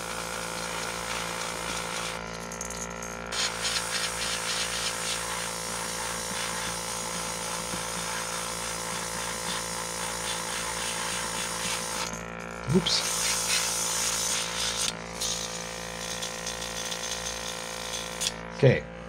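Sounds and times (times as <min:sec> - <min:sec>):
air compressor humming: 0:00.0 - 0:19.0
airbrush hissing: 0:03.3 - 0:12.2, 0:12.8 - 0:18.3.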